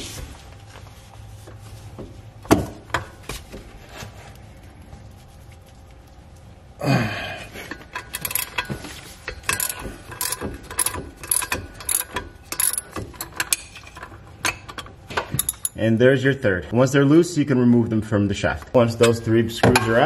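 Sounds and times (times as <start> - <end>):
ratchet wrench clicking: 8.0 - 8.7, 9.4 - 14.1, 15.4 - 15.8
loud nut creak: 8.0 - 8.8, 9.5 - 13.3.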